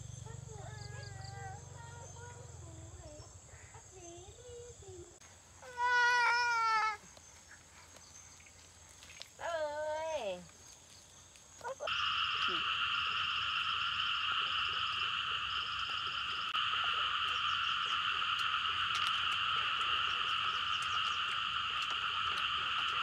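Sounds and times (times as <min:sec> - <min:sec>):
frogs chorus trilling: 0:00.0 - 0:04.7, 0:11.6 - 0:23.0.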